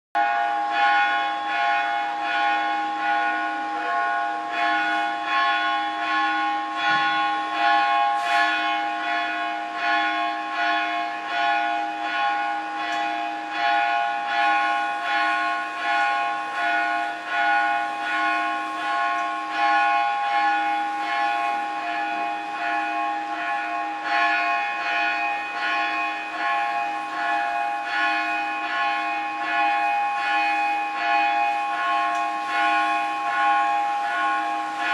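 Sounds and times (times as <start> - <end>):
temple bells ringing: 0.2 - 34.9.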